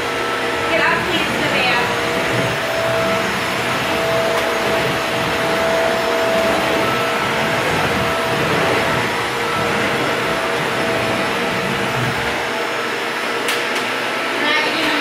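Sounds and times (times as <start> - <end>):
vacuum cleaner running: 0.0 - 15.0.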